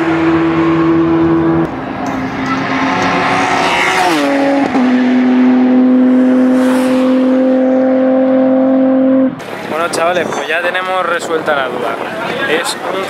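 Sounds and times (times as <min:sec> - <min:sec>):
race car passing at speed: 0:00.0 - 0:09.8.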